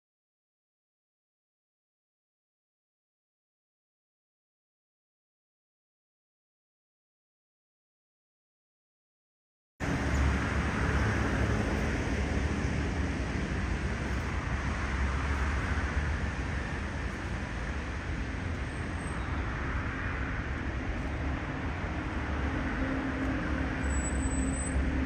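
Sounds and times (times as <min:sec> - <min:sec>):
outdoor rumble and hiss: 0:09.8 - 0:25.0.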